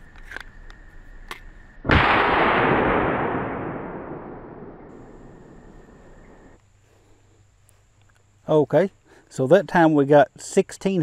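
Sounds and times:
rifle shot with echo: 0:01.9 - 0:06.6.

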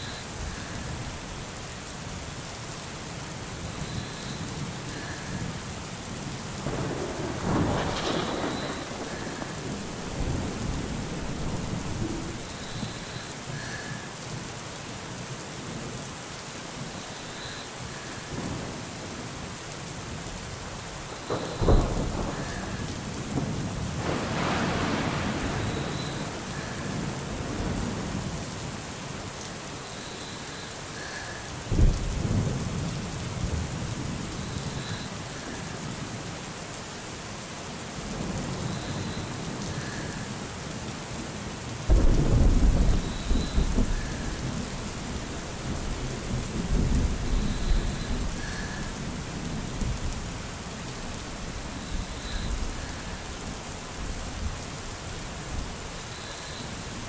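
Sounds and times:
steady rain: 0:00.0 - 0:57.0
thunder claps and rumbles: 0:06.6 - 0:13.1, 0:21.1 - 0:28.5, 0:31.6 - 0:35.6, 0:41.8 - 0:50.4.

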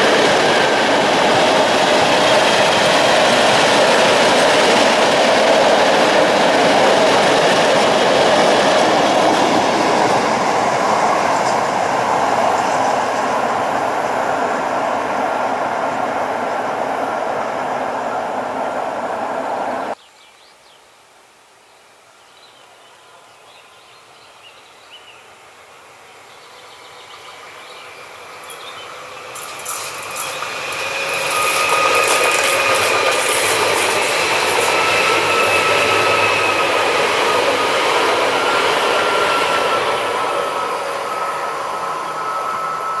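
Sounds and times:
high-pitched train whine: 0:00.0 - 0:20.0, 0:25.4 - 0:43.0
train wheel and rail noise: 0:00.0 - 0:20.0, 0:25.4 - 0:43.0.

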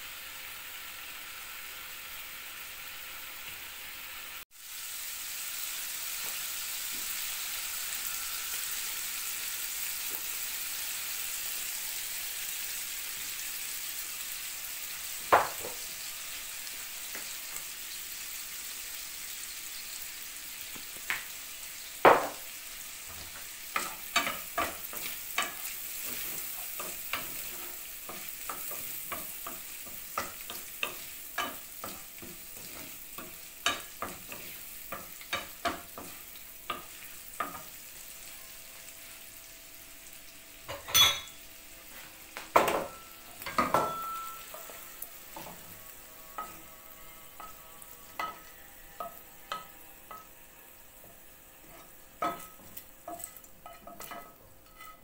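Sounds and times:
shrimp sizzling in a frying pan: 0:00.0 - 0:55.0
spoon knocking on pan: 0:15.3 - 0:15.8, 0:22.0 - 0:22.5, 0:23.1 - 0:37.7, 0:42.5 - 0:46.6
wooden spoon scraping a pan: 0:23.1 - 0:37.7, 0:51.6 - 0:55.0.

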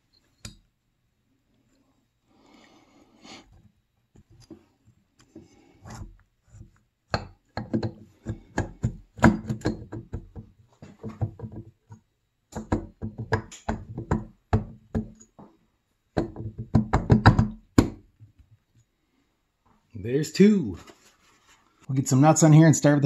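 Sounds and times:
metal engine parts knocking and clinking: 0:07.2 - 0:10.3.

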